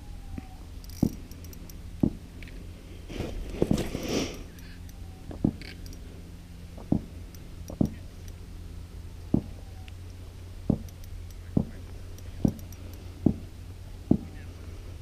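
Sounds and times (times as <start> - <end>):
steady low rumble: 0.0 - 15.0
soft low thumps: 1.9 - 2.3, 6.7 - 8.0, 9.2 - 9.7, 10.6 - 14.5.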